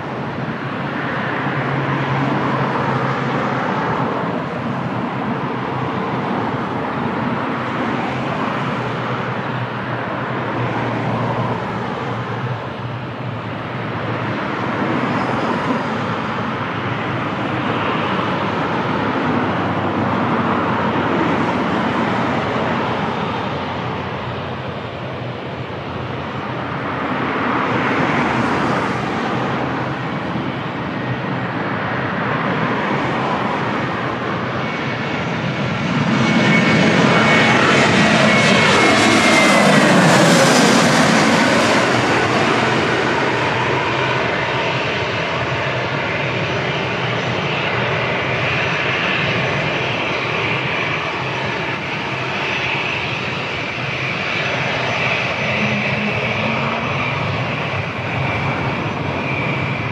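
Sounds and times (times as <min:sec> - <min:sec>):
loud engine noise: 0:13.6 - 0:59.9.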